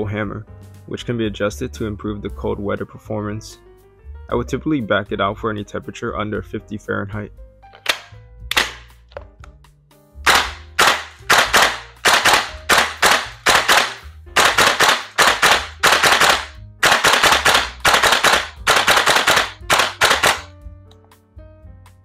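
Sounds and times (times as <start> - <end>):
background music: 0.0 - 22.0
airsoft rifle shots: 7.8 - 8.9, 10.3 - 20.5.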